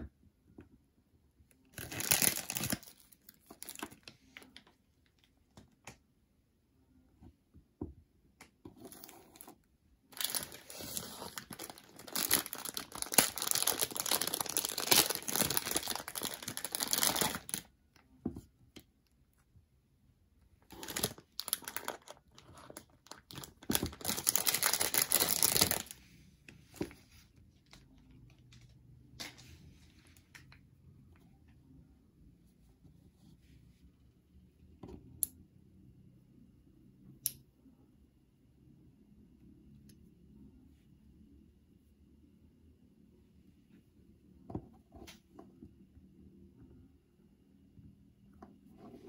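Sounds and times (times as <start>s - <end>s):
plastic bag crinkling: 1.8s - 4.1s, 10.1s - 17.7s, 20.7s - 26.0s.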